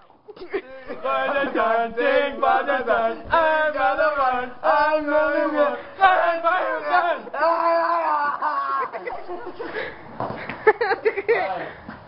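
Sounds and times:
men singing drawn-out notes: 0.4s - 8.4s.

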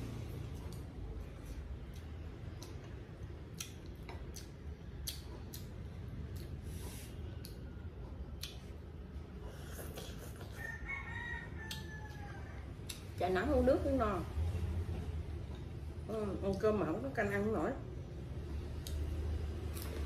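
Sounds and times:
chewing: 0.5s - 6.8s, 7.4s - 11.0s, 11.6s - 13.2s, 18.7s - 20.0s
rooster crowing faintly: 10.5s - 13.1s.

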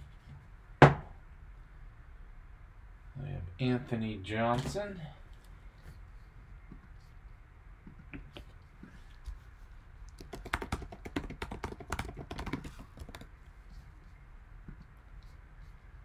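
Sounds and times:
computer keyboard typing: 10.1s - 13.3s.

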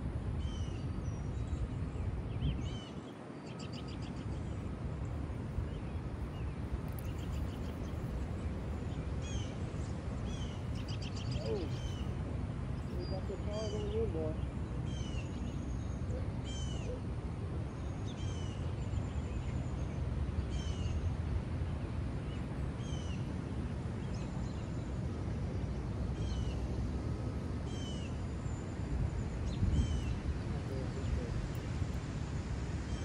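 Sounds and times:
bird calling: 10.2s - 12.2s
wind on microphone: 28.2s - 33.0s.

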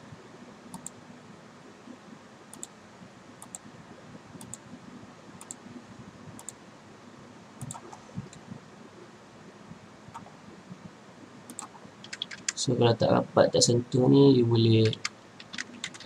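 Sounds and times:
steady background hiss: 0.0s - 16.0s
computer mouse clicking: 0.7s - 1.0s, 2.5s - 2.8s, 3.4s - 3.6s, 4.4s - 4.6s, 5.4s - 5.6s, 6.4s - 6.6s, 7.6s - 8.4s, 10.1s - 10.3s, 11.5s - 12.6s, 14.8s - 16.0s.

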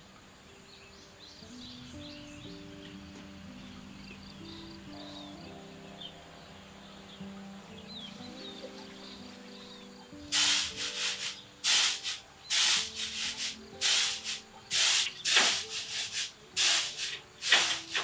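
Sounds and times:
rice swishing in woven tray: 10.3s - 18.0s.

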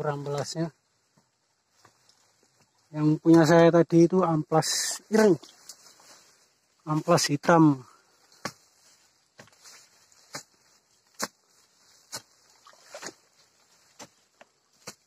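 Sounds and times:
digging bar knocking into soil: 8.3s - 8.7s, 9.3s - 11.5s, 12.1s - 13.3s, 13.9s - 15.0s.

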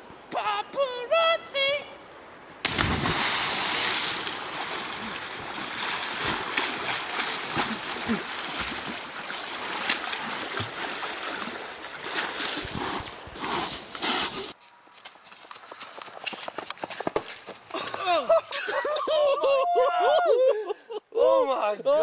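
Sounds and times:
big splash into water: 2.6s - 11.4s
water splashing and sloshing: 2.6s - 14.6s.

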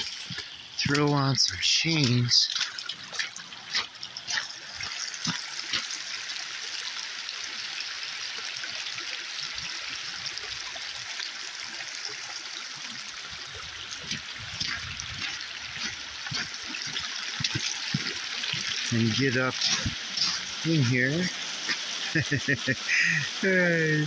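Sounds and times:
water trickling: 0.0s - 24.0s.

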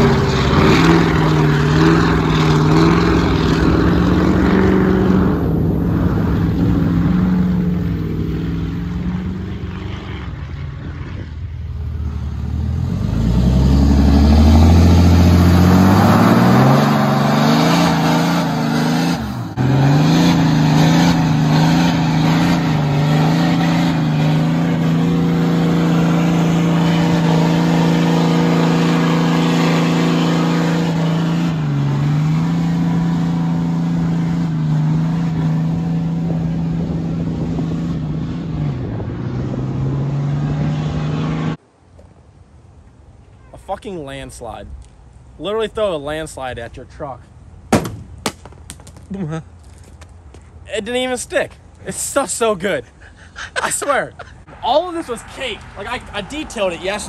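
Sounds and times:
diesel engine revving: 0.0s - 41.6s
tires spinning on pavement: 0.0s - 41.6s.

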